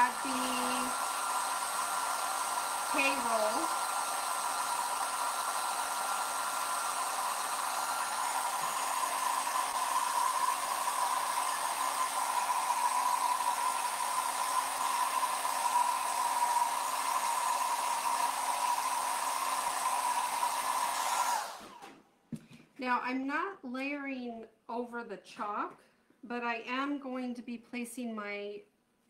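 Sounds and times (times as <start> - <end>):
hair dryer running: 0.0 - 22.0.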